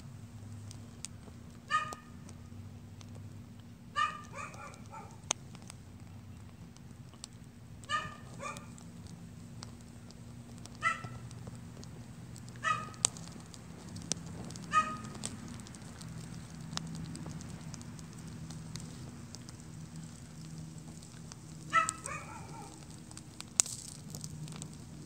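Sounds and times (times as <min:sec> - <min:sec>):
fire crackling and popping: 0:00.0 - 0:25.0
low steady rumble: 0:00.0 - 0:25.0
dog barking: 0:01.7 - 0:02.1, 0:04.0 - 0:05.2, 0:07.9 - 0:08.7, 0:10.8 - 0:11.2, 0:12.6 - 0:13.0, 0:14.7 - 0:15.2, 0:21.7 - 0:22.8.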